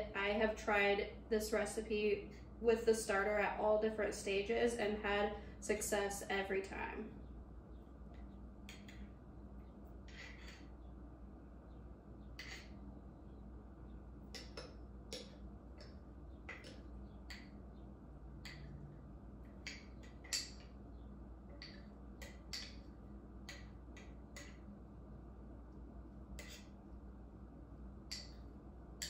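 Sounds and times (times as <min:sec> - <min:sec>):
spoon scraping and tapping in a jar: 0:26.4 - 0:26.7.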